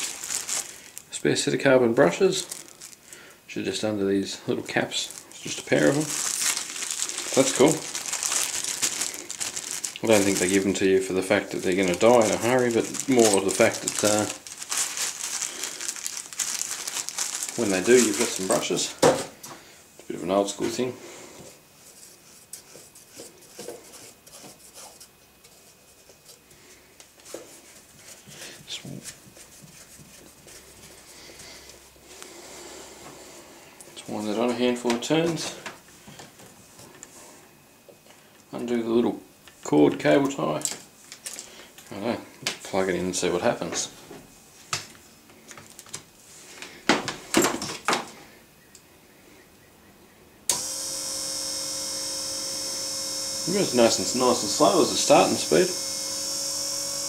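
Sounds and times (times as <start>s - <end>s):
electric motor humming: 50.5s - 57.0s.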